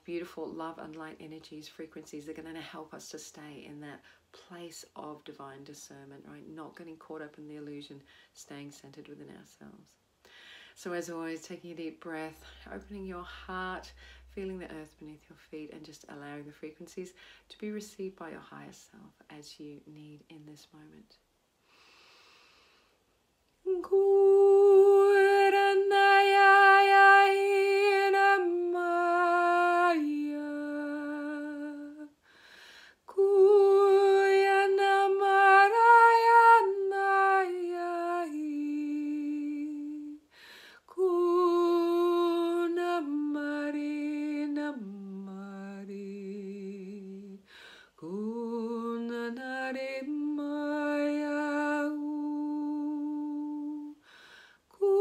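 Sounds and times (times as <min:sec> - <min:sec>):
woman singing wordless held notes: 0:10.8 - 0:21.2, 0:23.6 - 0:32.2, 0:33.0 - 0:40.3, 0:40.9 - 0:54.0, 0:54.8 - 0:55.0.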